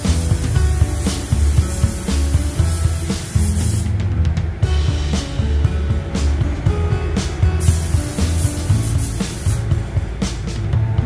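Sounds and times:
air spray gun hissing: 0.0 - 4.0, 7.6 - 9.8
background music with beat: 0.0 - 11.0.

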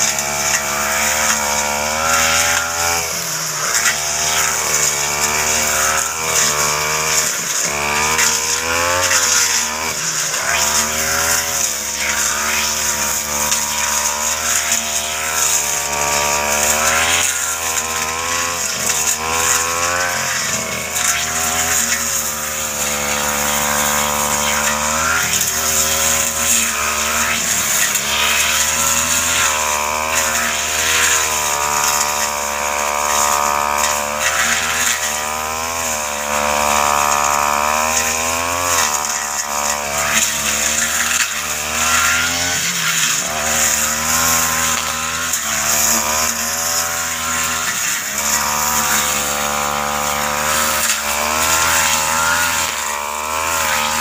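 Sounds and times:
brush cutter engine under load: 0.0 - 54.0
cutting through ferns and grass: 0.0 - 54.0.

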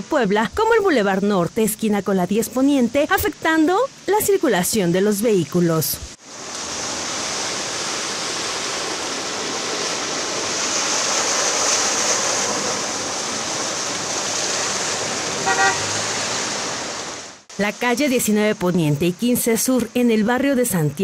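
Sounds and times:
tyres splashing through water: 6.2 - 17.5.

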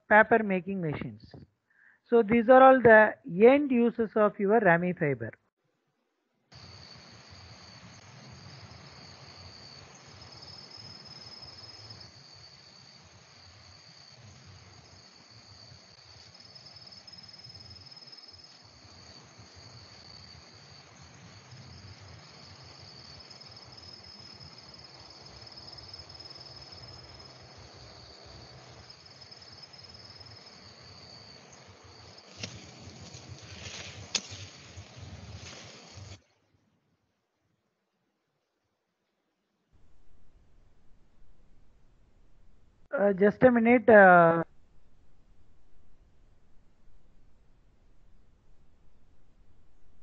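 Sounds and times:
insects chorus: 6.5 - 36.2.

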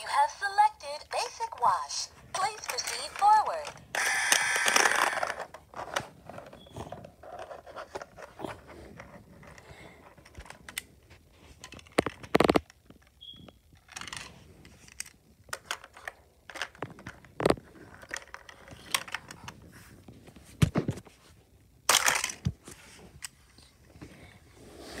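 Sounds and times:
toy car on plastic track: 0.1 - 8.3, 13.8 - 19.5, 21.9 - 23.0.

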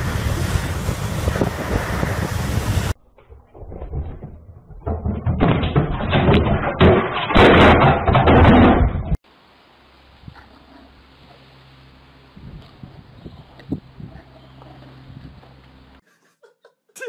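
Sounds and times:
tv crashing onto tile floor: 3.5 - 9.2.

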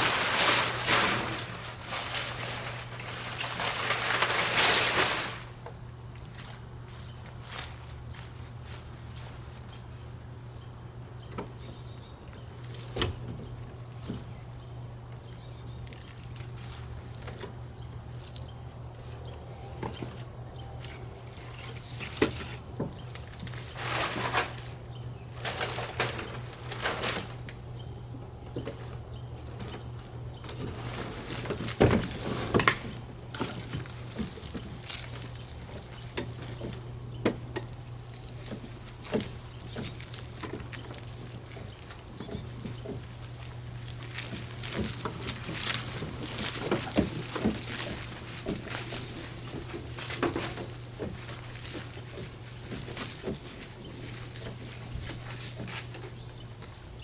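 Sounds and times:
rustling and rattling in leaves: 0.0 - 57.0
footsteps: 30.5 - 57.0.

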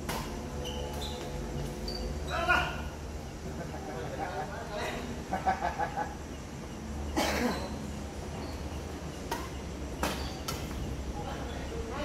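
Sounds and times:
racket hitting shuttlecock: 0.0 - 1.3, 9.3 - 10.9
person coughing: 7.2 - 7.6.

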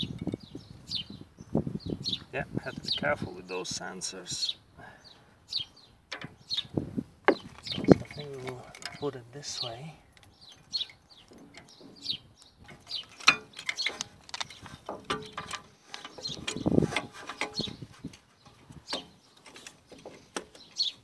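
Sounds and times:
metal clamp clunk: 6.1 - 6.4, 7.3 - 9.2, 10.2 - 20.9
metallic clicks and knocks: 6.1 - 6.7, 7.3 - 21.0.

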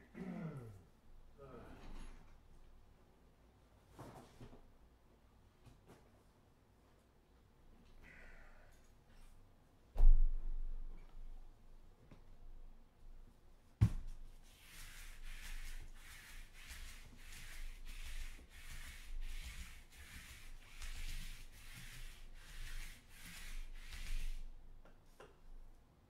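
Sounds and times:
lint roller rubbing on mat: 14.0 - 24.6.

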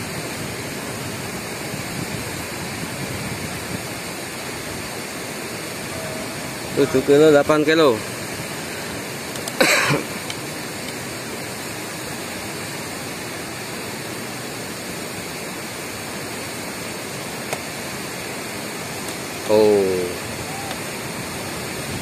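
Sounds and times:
water rushing through sluice gates: 0.0 - 22.0
brief cough-like burst: 9.6 - 10.2.

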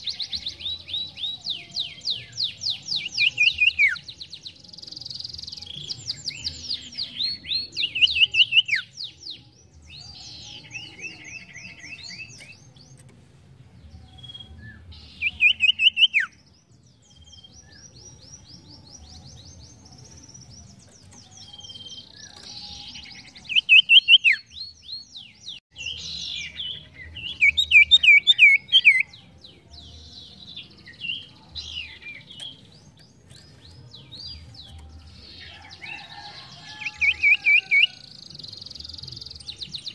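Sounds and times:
bird singing rapid chirp trills: 0.0 - 39.9
soft bird chirping: 0.0 - 39.9.

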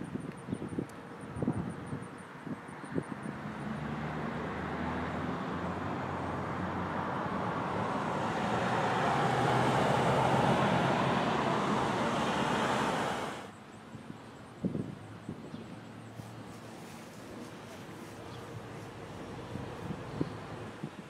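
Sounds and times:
vehicle driving past: 3.3 - 13.5.

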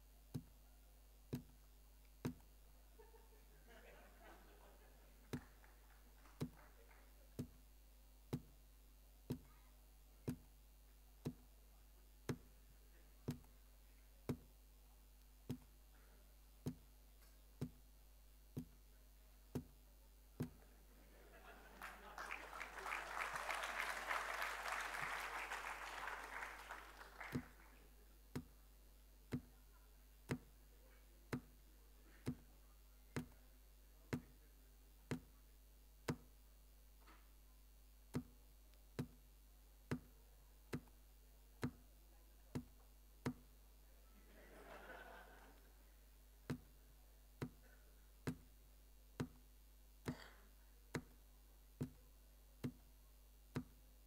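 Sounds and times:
applause: 5.3 - 7.2, 21.8 - 27.8
faint burst of noise: 18.9 - 34.7.

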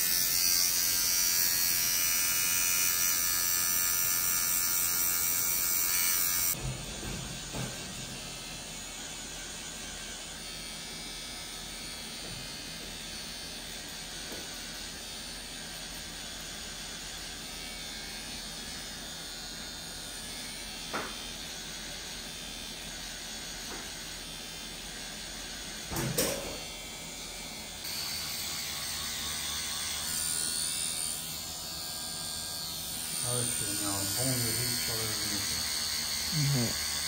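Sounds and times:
tattoo machine running: 0.0 - 37.0.

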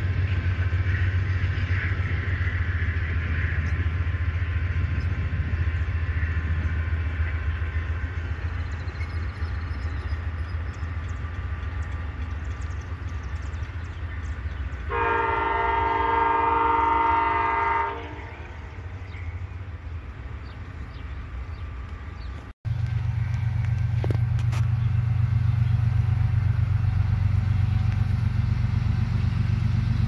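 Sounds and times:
distant train air horn: 14.9 - 18.8
steady low rumble: 18.1 - 30.0.

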